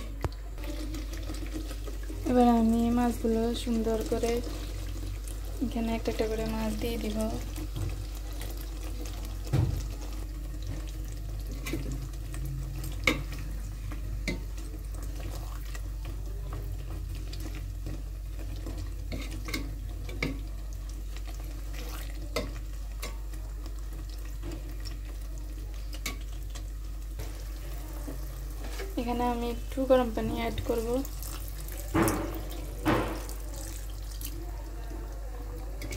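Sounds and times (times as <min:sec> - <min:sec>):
faint sizzle: 0:00.0 - 0:35.9.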